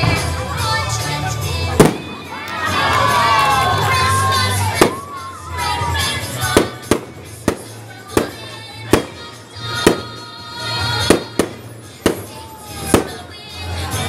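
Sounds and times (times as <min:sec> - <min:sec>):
background music: 0:00.0 - 0:14.0
fireworks bursting: 0:01.4 - 0:13.4.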